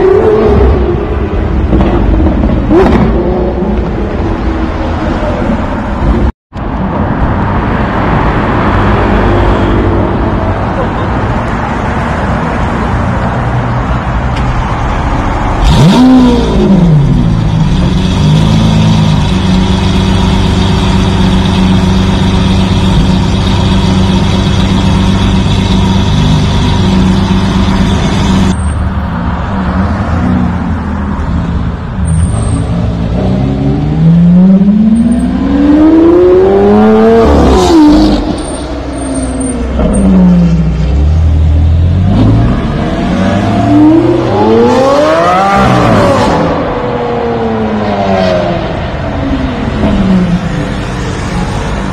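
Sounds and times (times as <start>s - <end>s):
sports car accelerating: 15.5s - 28.6s, 32.9s - 38.5s, 39.7s - 51.6s
sports car engine revving: 15.6s - 28.6s.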